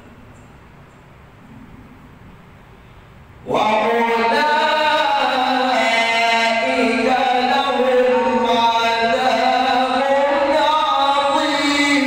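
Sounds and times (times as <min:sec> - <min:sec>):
man chanting melodically: 0:03.4 - 0:12.0.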